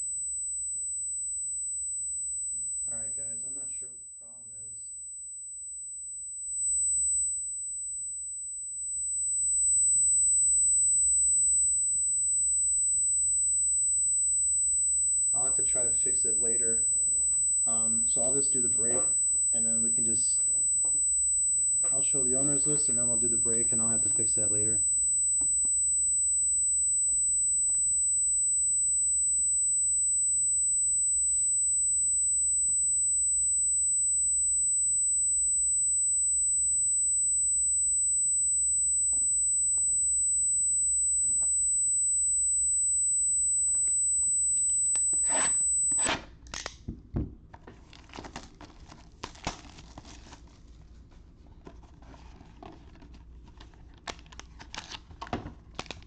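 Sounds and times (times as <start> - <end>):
high-pitched electronic whine: 0.0 - 46.2
foil card packs crinkling: 47.7 - 50.6.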